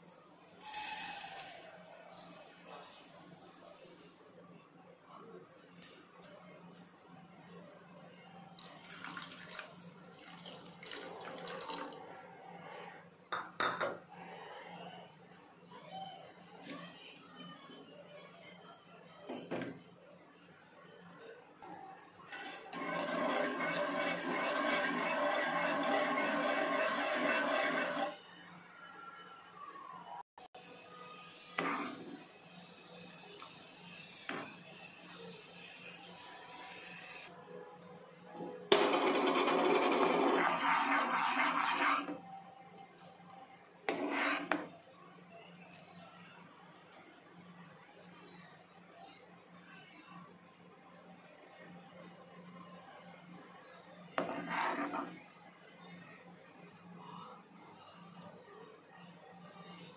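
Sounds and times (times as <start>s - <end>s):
ladle scraping a saucepan: 22.3s - 28.2s, 31.6s - 32.2s, 38.8s - 42.2s, 43.9s - 44.7s, 54.2s - 55.2s
syrup bubbling: 22.3s - 28.2s.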